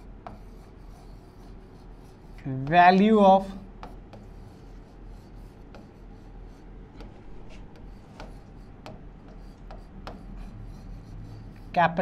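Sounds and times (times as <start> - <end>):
stylus tapping on screen: 6.9 - 10.5.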